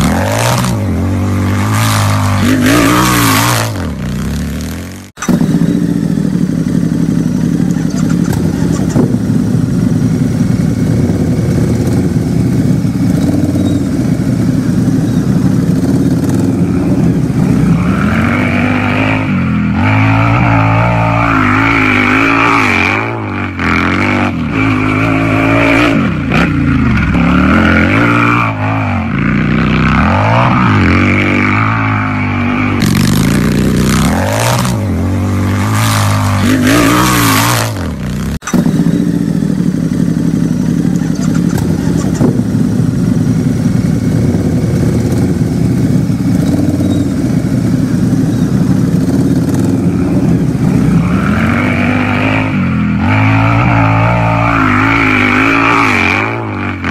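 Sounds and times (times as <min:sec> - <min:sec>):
motorcycle engine revving: 0:00.0 - 0:56.9
motorcycle engine idling: 0:04.0 - 0:17.7, 0:38.0 - 0:51.0.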